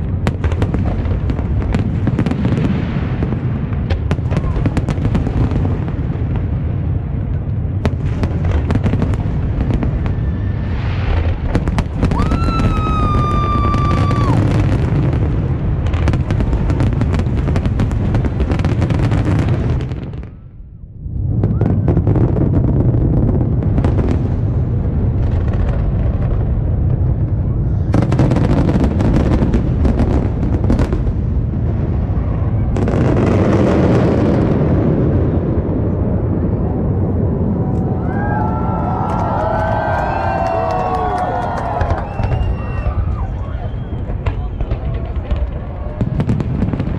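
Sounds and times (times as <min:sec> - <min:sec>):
fireworks booming and crackling: 0:00.0 - 0:46.9
firework whistle: 0:09.7 - 0:14.9, 0:37.6 - 0:46.1.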